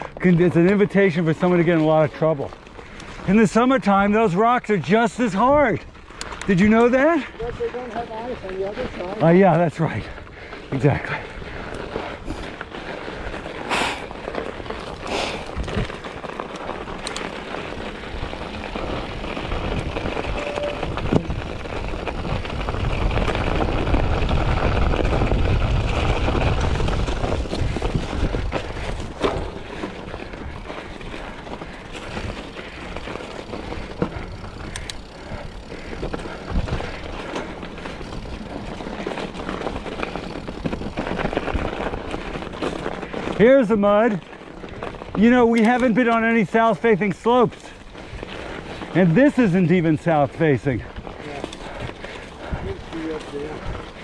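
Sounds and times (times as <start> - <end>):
bike tyres on muddy trail: 0.0 - 54.0
bike clicks and knocks: 6.0 - 8.8, 14.2 - 24.7, 25.4 - 43.4, 44.3 - 46.4, 51.0 - 52.4.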